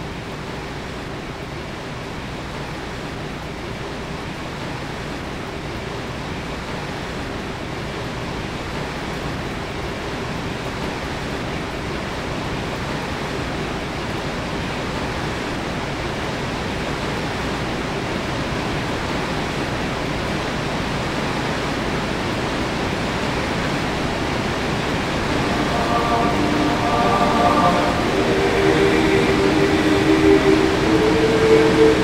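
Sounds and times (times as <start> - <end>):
whitewater rushing: 22.2 - 32.0.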